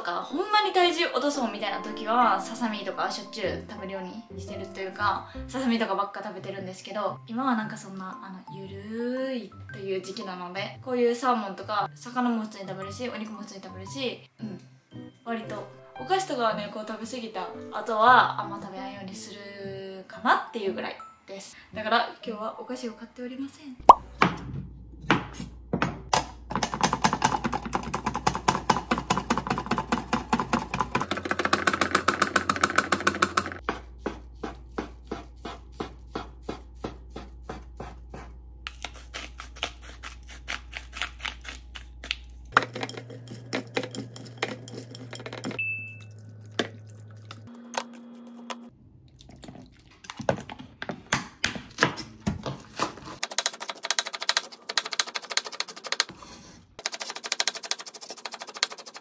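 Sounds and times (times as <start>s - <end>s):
knife chopping on wooden board: 33.0s - 42.9s.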